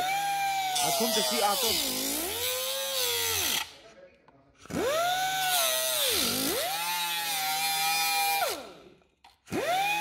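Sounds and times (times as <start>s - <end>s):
angle grinder cutting metal pipe: 0.0s - 3.7s.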